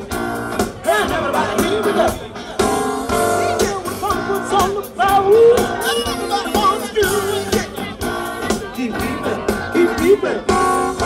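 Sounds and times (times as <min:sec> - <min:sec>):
live band playing: 0:00.0 - 0:11.0
person singing: 0:03.2 - 0:11.0.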